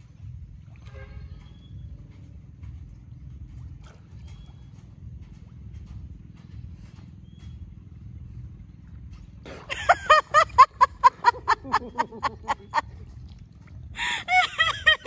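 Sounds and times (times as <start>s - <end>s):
low steady rumble: 0.0s - 15.0s
child laughing: 9.7s - 12.8s, 14.0s - 15.0s.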